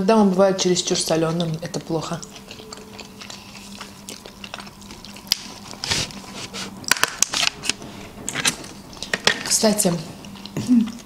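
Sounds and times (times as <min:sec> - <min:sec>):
eating crunches and clicks: 0:00.8 - 0:07.8.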